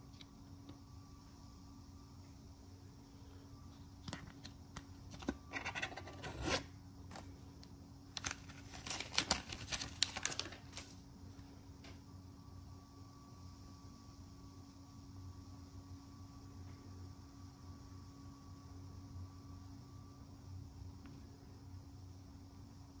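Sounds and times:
faint steady hum: 0.0s - 23.0s
paper rustling and crinkling: 8.2s - 11.0s.

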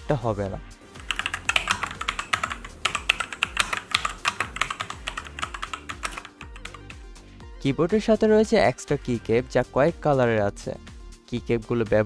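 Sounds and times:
mechanical keyboard typing: 0.9s - 7.0s.

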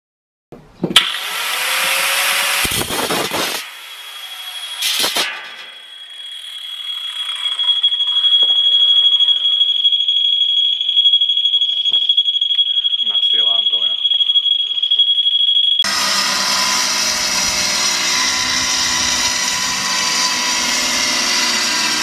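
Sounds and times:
angle grinder cutting metal sheet: 1.0s - 8.4s, 15.8s - 22.0s
steady high-pitched tone: 2.6s - 22.0s.

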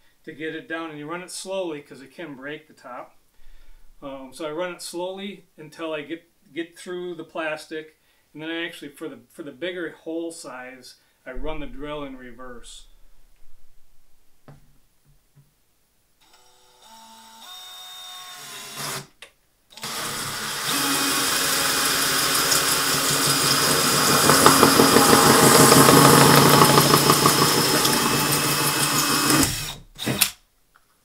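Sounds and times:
cordless drill speeding up: 19.8s - 30.3s
hole saw cutting plastic: 19.8s - 30.4s.

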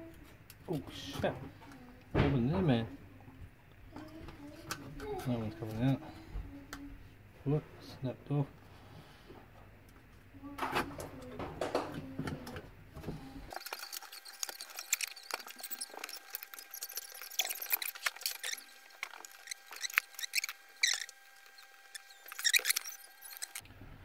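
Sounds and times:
pliers clicking and scratching: 13.5s - 23.6s.

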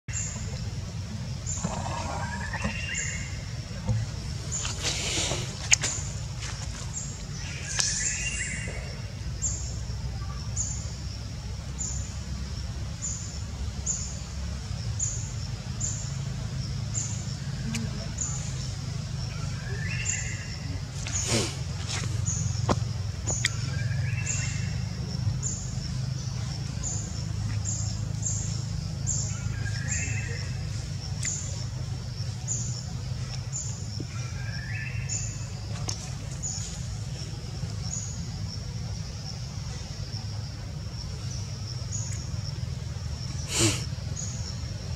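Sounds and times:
small bird chirping: 13.0s - 40.3s.

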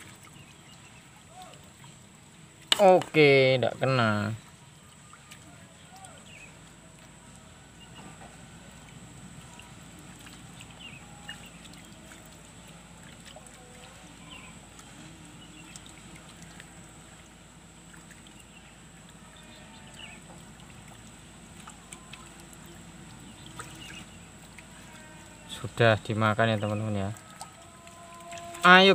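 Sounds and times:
low background hum: 0.0s - 28.9s
faint bird chirps: 13.6s - 16.2s.

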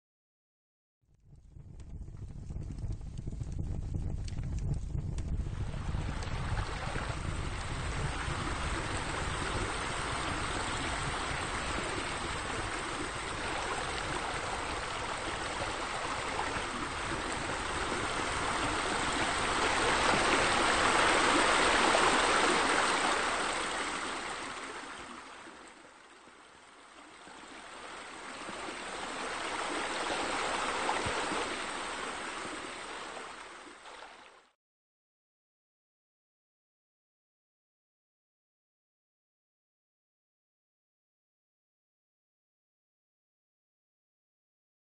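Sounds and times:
running water rushing: 5.6s - 34.5s.

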